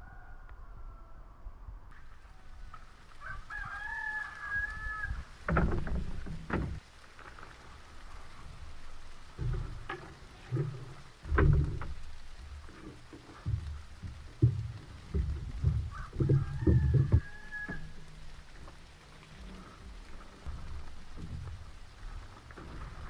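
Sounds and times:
rooster crowing: 0:00.0 - 0:01.6, 0:03.2 - 0:05.3, 0:15.6 - 0:18.2
gear thudding on bamboo deck: 0:05.2 - 0:23.0.

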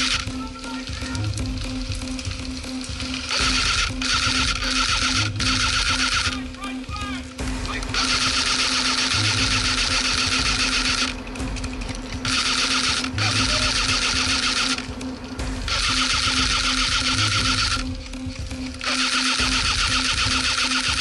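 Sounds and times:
airsoft rifle firing full-auto: 0:03.1 - 0:06.4, 0:07.9 - 0:11.2, 0:12.2 - 0:14.8, 0:15.7 - 0:17.8, 0:18.8 - 0:21.0.

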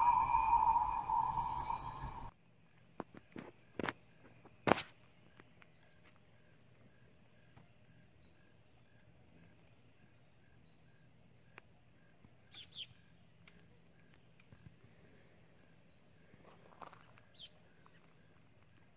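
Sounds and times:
falling bird chirps: 0:00.0 - 0:02.3
high-pitched insect drone: 0:00.0 - 0:02.3.

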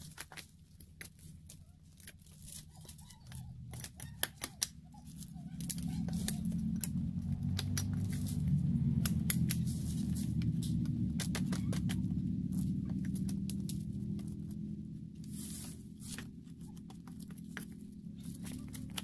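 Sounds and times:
dry wood cracking and snapping: 0:00.0 - 0:19.0
steady low rumble: 0:00.0 - 0:19.0
leaf litter crunching underfoot: 0:04.9 - 0:14.6, 0:15.2 - 0:19.0.

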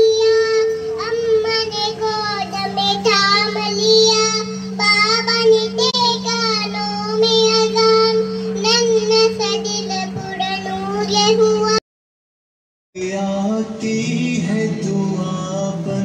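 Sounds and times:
low hum: 0:00.0 - 0:11.8, 0:13.0 - 0:16.0.

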